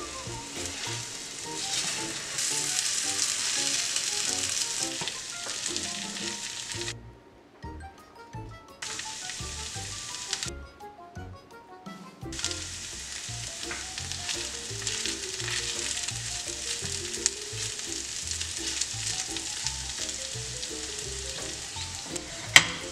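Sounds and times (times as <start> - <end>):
wooden spatula stirring pan: 0.0 - 6.9, 12.4 - 22.9
background music: 0.0 - 22.9
food sizzling in a skillet: 0.1 - 6.9, 12.4 - 22.9.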